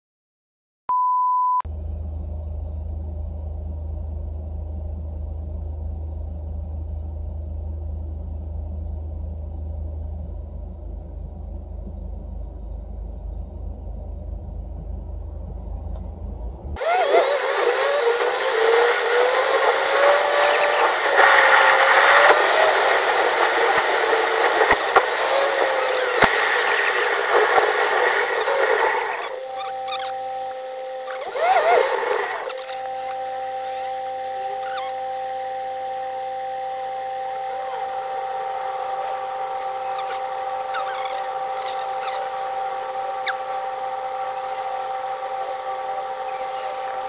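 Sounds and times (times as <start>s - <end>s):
low car cabin drone: 1.7s - 47.0s
road and wind noise in car: 9.2s - 28.6s.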